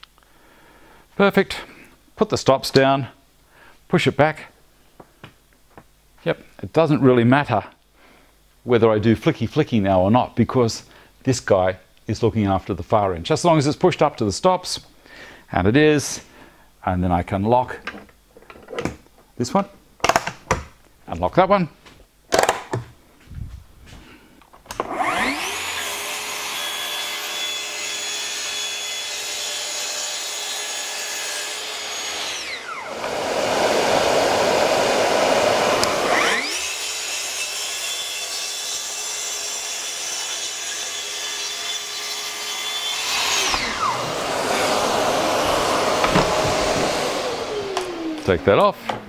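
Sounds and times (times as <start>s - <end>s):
track saw motor whining: 24.7s - 41.2s, 42.7s - 48.6s
saw blade cutting board: 24.8s - 34.5s, 35.1s - 48.5s.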